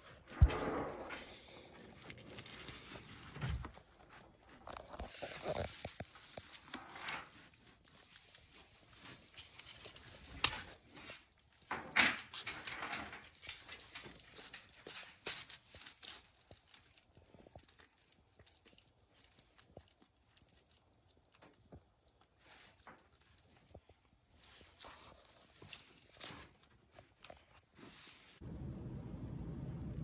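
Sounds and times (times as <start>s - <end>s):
lizard jaws tearing wet meat: 4.9s - 21.4s.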